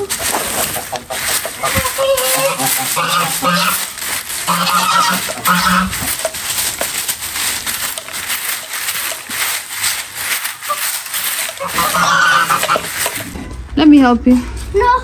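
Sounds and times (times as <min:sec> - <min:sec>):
broom sweeping earth and leaves: 0:00.0 - 0:14.8.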